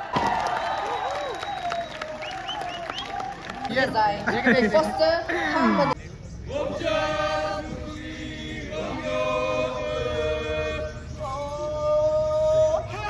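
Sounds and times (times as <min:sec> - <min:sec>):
men chanting together: 0:06.5 - 0:13.0.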